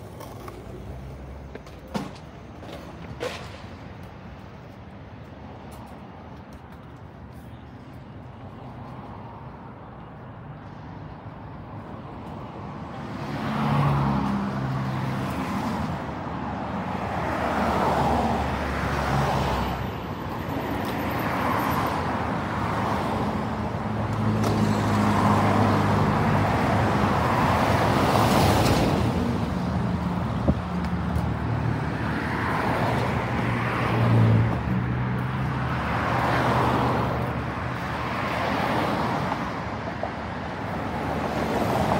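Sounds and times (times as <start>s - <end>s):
cars driving past: 8.5s - 41.9s.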